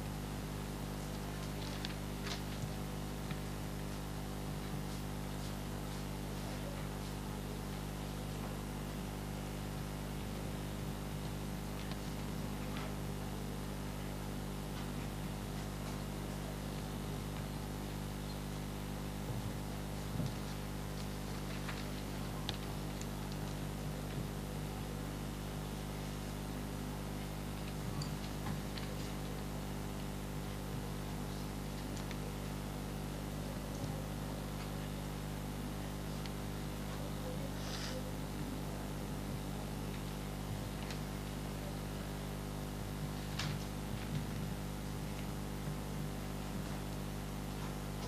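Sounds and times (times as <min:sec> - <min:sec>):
low room hum: 0:00.0 - 0:48.0
pencils and paper rustling: 0:00.9 - 0:08.6, 0:11.1 - 0:13.6, 0:19.2 - 0:25.1, 0:26.2 - 0:35.0, 0:35.6 - 0:42.1, 0:42.8 - 0:48.0.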